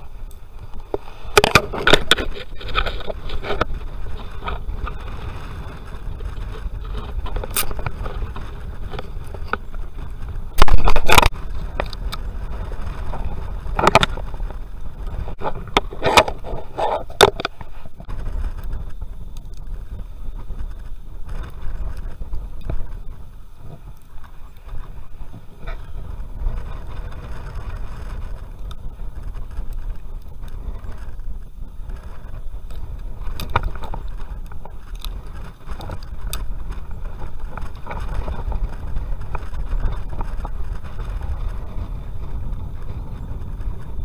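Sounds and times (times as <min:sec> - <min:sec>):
loud rough noise burst: 0:00.0 - 0:44.0
steady low rumble: 0:00.0 - 0:44.0
crab shell cracking and scraping: 0:00.8 - 0:05.1, 0:06.4 - 0:09.7, 0:10.6 - 0:12.2, 0:32.1 - 0:38.6.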